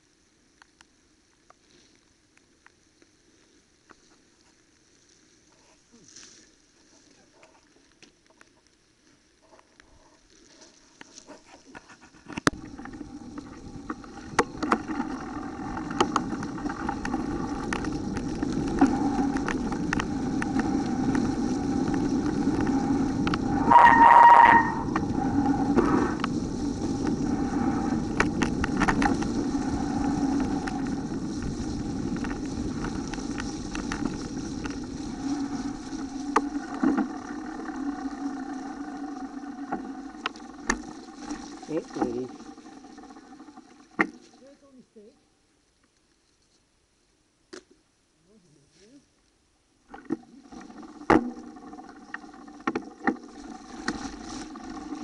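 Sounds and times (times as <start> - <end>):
wind: 0.0 - 55.0
bike tyres rumbling on dirt: 10.5 - 44.6, 50.1 - 55.0
bike rattling over bumps: 12.5 - 42.3
high squeal: 22.2 - 26.2.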